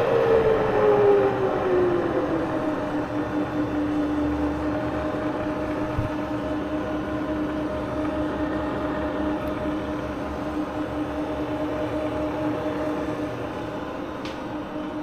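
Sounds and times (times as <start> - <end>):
milling machine humming: 0.0 - 15.0.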